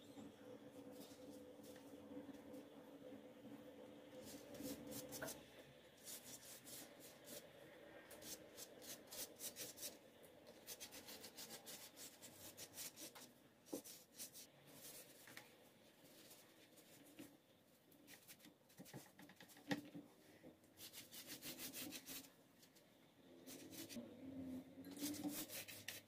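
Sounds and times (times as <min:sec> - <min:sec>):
pastry brush strokes on dough: 0:04.2 - 0:07.5, 0:08.1 - 0:10.0, 0:10.6 - 0:17.3, 0:20.8 - 0:22.8, 0:23.4 - 0:24.0, 0:24.9 - 0:26.0.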